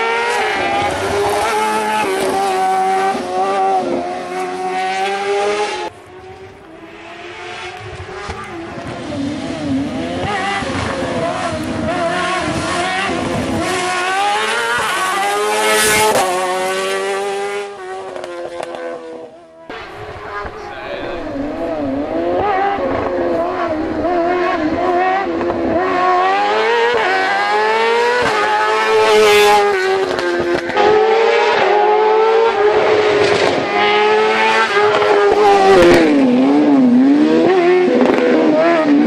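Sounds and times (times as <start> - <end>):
race car engine revving hard: 0.0 - 39.0.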